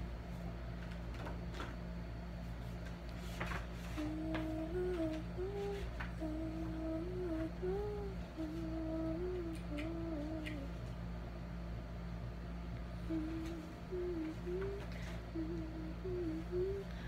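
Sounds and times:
low electrical hum: 0.0 - 17.0
girl humming a tune: 4.0 - 10.9, 13.0 - 17.0.

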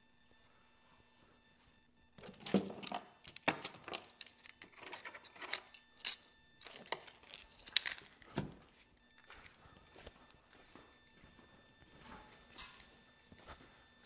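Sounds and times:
small hard objects clicking: 2.2 - 8.3.

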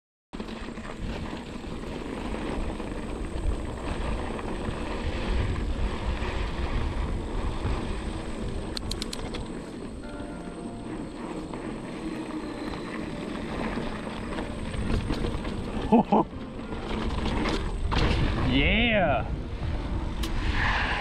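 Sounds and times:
bike tyre and trail noise: 0.4 - 21.0
wind on microphone: 0.7 - 15.9, 16.7 - 21.0
clicks: 8.7 - 9.6.

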